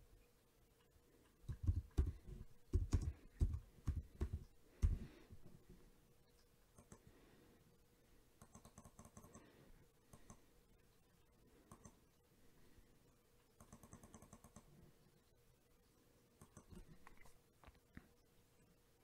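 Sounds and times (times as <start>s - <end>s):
computer mouse clicks: 6.4s - 7.1s, 8.4s - 9.5s, 10.1s - 10.4s, 11.6s - 12.0s, 13.6s - 14.7s, 16.4s - 18.1s
scroll-wheel ticks: 8.4s - 9.4s, 11.7s - 12.0s, 13.6s - 14.7s.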